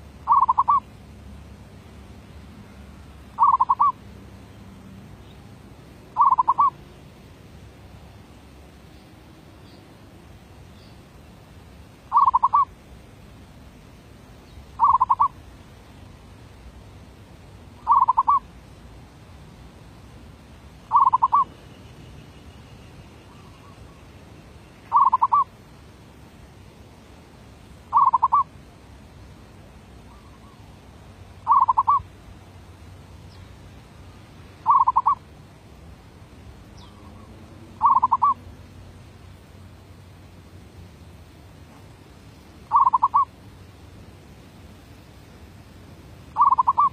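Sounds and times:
dove cooing: 0.3s - 0.8s, 3.4s - 4.0s, 6.2s - 6.8s, 12.1s - 12.7s, 14.8s - 15.4s, 17.8s - 18.4s, 20.9s - 21.5s, 24.9s - 25.5s, 27.9s - 28.5s, 31.5s - 32.0s, 34.6s - 35.2s, 37.0s - 38.4s, 42.7s - 43.3s, 46.4s - 46.9s.

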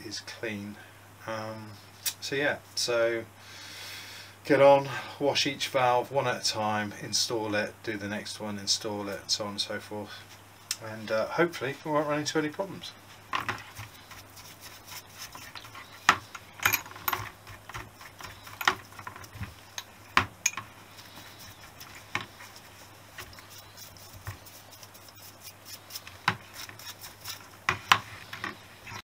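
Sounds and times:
faint rubbing: 11.6s - 16.6s, 20.7s - 29.0s.

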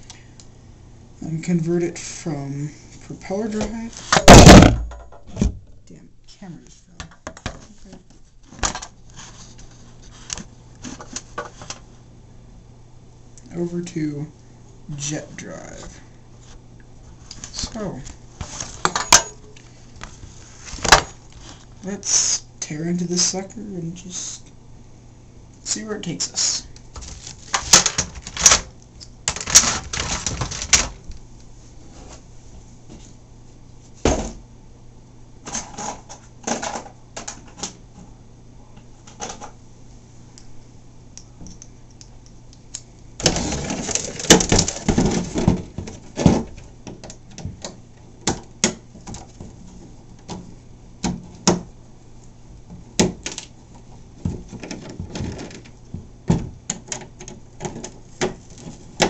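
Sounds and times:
plastic parts clattering: 27.0s - 28.7s, 29.3s - 31.0s, 43.2s - 47.6s, 54.3s - 55.8s.

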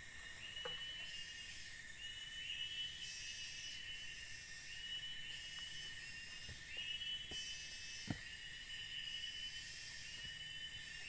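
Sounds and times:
forest insects calling: 0.0s - 11.0s
high repeating insect call: 0.0s - 11.0s
footsteps on dirt path: 5.6s - 8.4s.

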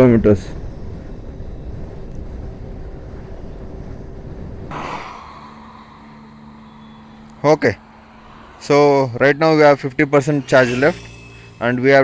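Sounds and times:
wind and road noise rushing: 0.0s - 12.0s
faint steady tone: 0.5s - 12.0s
low steady hum: 0.5s - 12.0s
brief whoosh: 4.6s - 12.0s.

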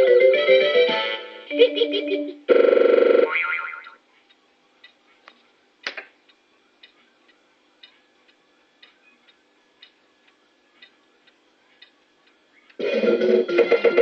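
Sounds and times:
fruit machine ticking: 2.6s - 5.0s, 6.3s - 14.0s.

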